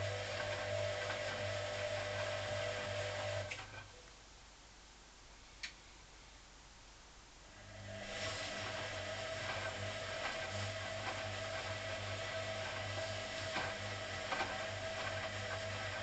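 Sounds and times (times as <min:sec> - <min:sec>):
washing machine hum: 0:00.0 - 0:04.0, 0:07.5 - 0:16.0
faint clicks: 0:05.6 - 0:05.8.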